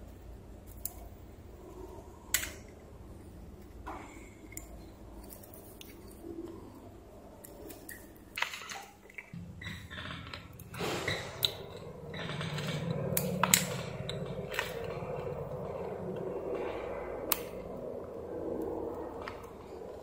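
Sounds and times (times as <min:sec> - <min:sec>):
steady low hum: 0:00.0 - 0:20.0
small steel parts clicking: 0:04.4 - 0:06.2.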